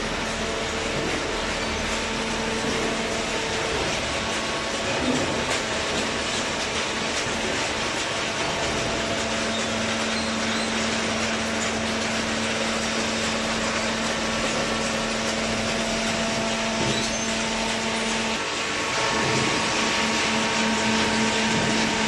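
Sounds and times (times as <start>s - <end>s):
baler machine running: 0.0s - 22.0s.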